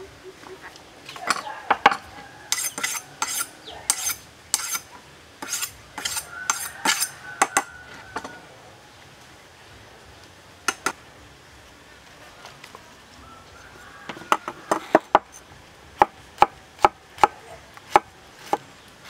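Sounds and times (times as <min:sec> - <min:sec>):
knife honing metal scrapes: 0:02.5 - 0:07.7.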